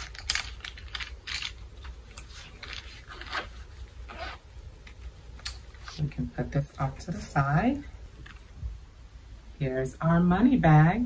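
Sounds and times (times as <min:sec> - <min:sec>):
pencils shifting in case: 0:00.0 - 0:06.0
zipper being pulled shut: 0:03.0 - 0:04.4.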